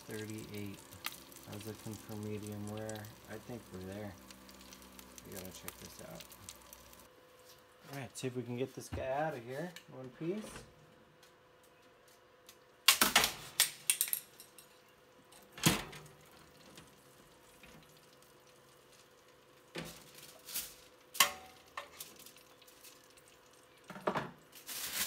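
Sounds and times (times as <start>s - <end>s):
faint steady hum: 0.0s - 24.9s
metal tongs clanking on pan: 21.2s - 22.0s.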